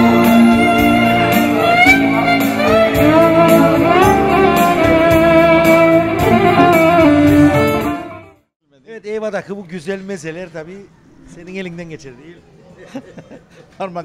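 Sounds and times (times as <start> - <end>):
electronic keyboard with steady beat: 0.0 - 8.3
violin melody with sliding notes: 0.0 - 8.4.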